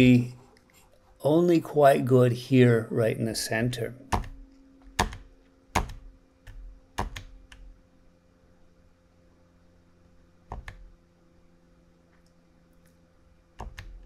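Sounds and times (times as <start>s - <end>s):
faint steady hum: 0.0s - 14.0s
computer control clicks: 10.5s - 10.9s, 13.6s - 14.0s.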